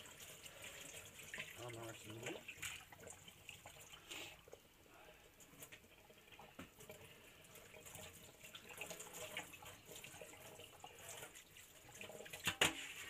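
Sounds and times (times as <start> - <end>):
small splashes and drips: 0.0 - 13.0
faucet running into steel sink: 5.6 - 13.0.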